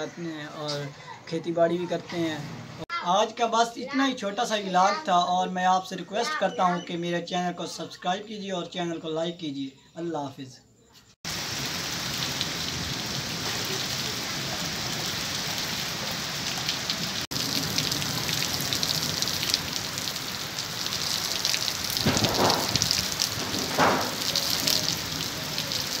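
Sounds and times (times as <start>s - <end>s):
heavy rain on ground and awning: 11.3s - 26.0s.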